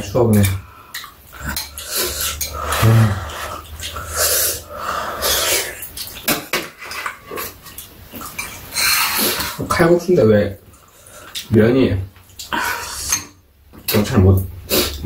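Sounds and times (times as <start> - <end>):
chopsticks clicking against bowls: 0.3 - 2.7
noodles being slurped: 1.3 - 6.3, 7.1 - 9.6.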